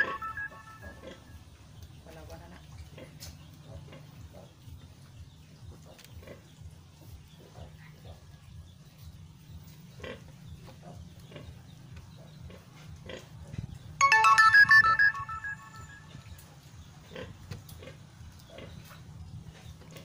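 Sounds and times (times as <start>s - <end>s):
electronic jingle: 0.0s - 1.0s, 14.0s - 16.3s
pigs grunting: 2.6s - 5.0s, 9.9s - 13.8s.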